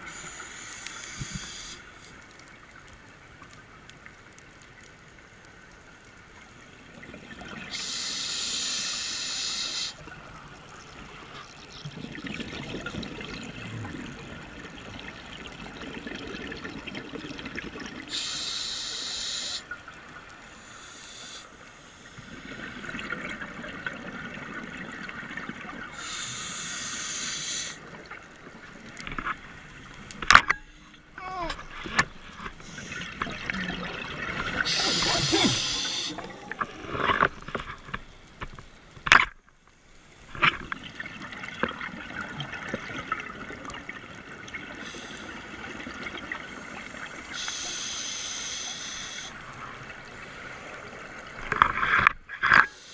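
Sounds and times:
regulator hissing inhalations: 0.0 - 1.9, 7.7 - 10.0, 18.1 - 19.7, 20.6 - 22.2, 26.0 - 27.8, 34.6 - 36.3, 47.3 - 49.4
bubbling exhalations: 32.6 - 37.5.

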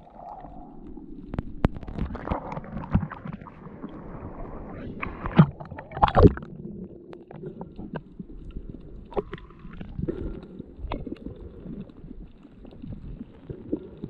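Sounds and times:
faint clicks and crackles: 0.0 - 14.0
underwater rumbling and sloshing: 0.0 - 14.0.

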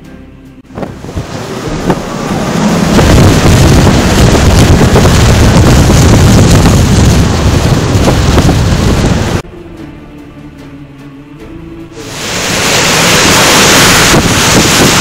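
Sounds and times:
strong wind blasting microphone: 0.7 - 9.4, 12.0 - 15.0.

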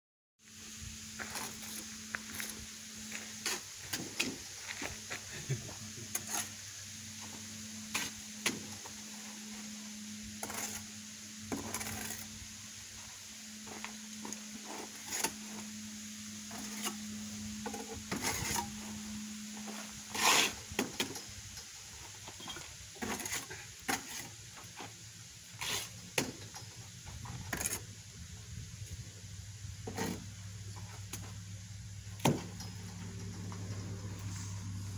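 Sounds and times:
steady low hum: 0.4 - 34.9.

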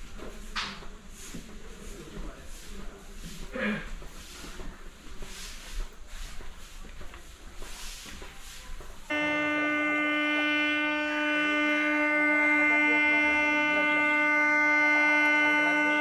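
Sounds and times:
faint clatter and hiss: 0.1 - 9.1
electric train horn: 9.1 - 16.0.

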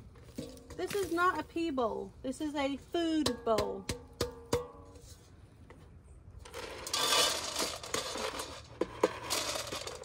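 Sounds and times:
pellets rattling into metal bowl: 6.5 - 10.0.

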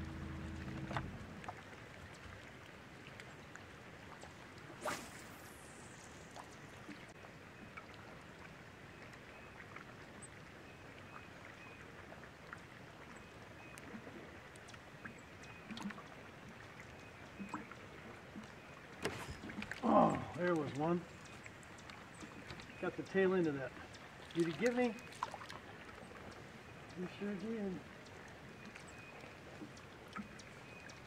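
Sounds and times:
fishing reel line whir: 0.0 - 1.4, 4.8 - 6.9
fishing rod cast swish: 4.8 - 6.0, 19.0 - 19.7.

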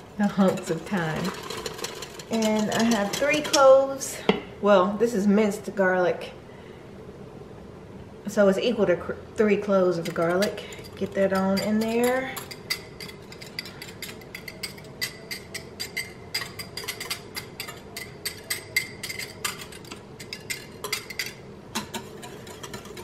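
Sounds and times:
whisk clinking against glass bowl: 10.0 - 23.0.

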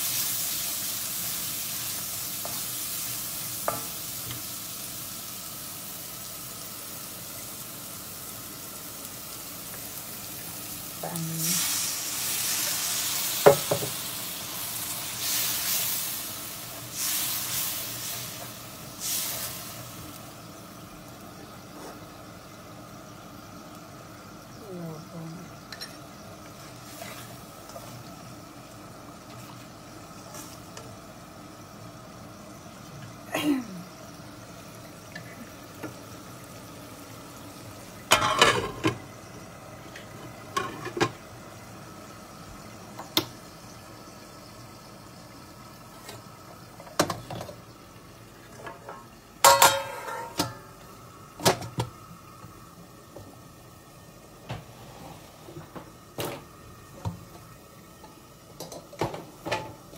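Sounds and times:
spice masala simmering in oil: 0.0 - 38.1, 39.0 - 49.5, 50.7 - 55.0
spatula and lid clinking: 38.1 - 39.0, 48.8 - 50.7.

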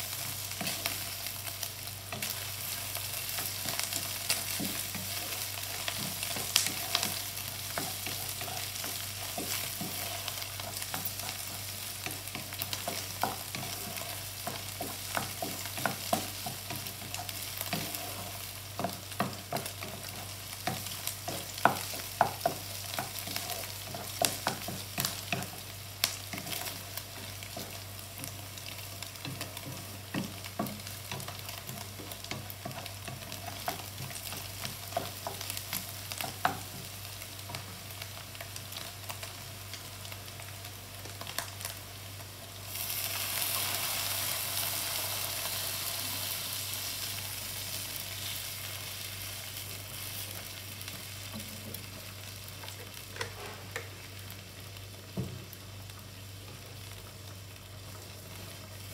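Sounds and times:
food frying in a pan: 0.0 - 58.9
wooden spatula scraping a pan: 3.4 - 25.7.

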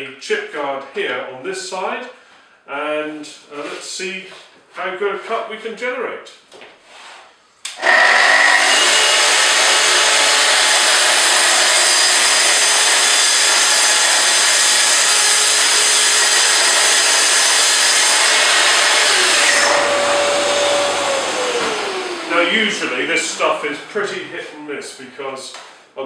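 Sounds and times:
saw motor whine: 7.7 - 23.9
track saw cutting chipboard: 7.7 - 24.2.

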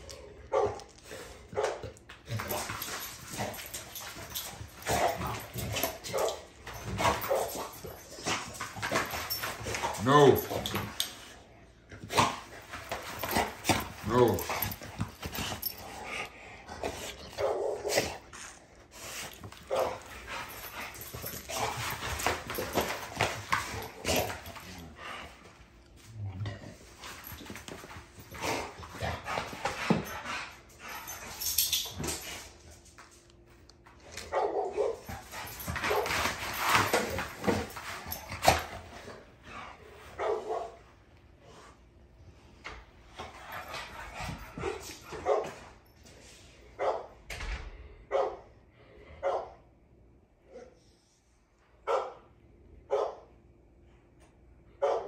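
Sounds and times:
dogs barking and yipping: 2.4 - 8.3.

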